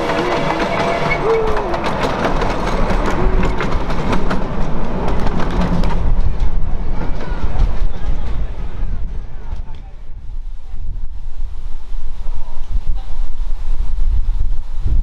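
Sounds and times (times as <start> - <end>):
train wheels clicking over rail joints: 0.0 - 8.6.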